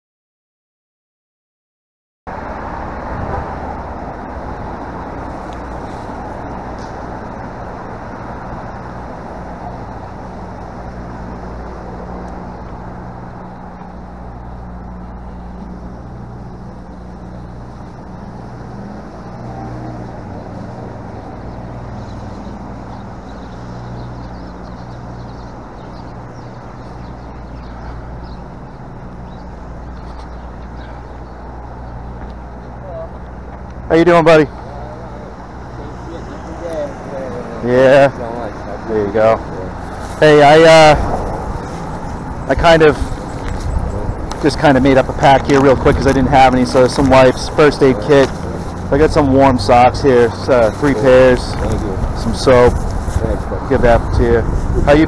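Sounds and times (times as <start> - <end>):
low engine hum: 2.3 - 55.0
traffic rumble: 2.3 - 55.0.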